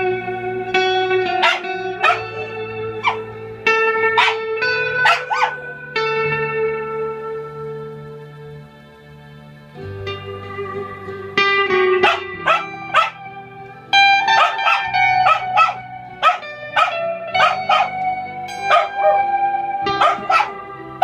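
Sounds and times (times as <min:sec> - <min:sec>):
electric guitar chords: 0:00.0 - 0:21.0
dog barking: 0:01.3 - 0:03.3, 0:04.1 - 0:05.8, 0:12.0 - 0:13.2, 0:14.2 - 0:19.3, 0:19.9 - 0:20.6.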